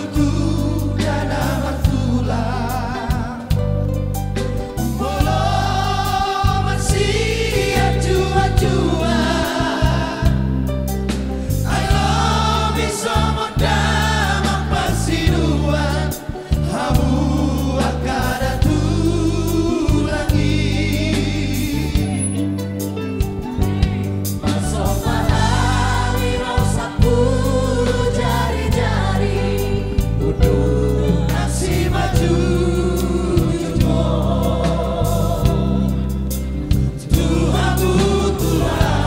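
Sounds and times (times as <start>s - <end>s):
group singing: 0.0s - 22.6s, 23.4s - 39.0s
bass-heavy band accompaniment: 0.0s - 39.0s.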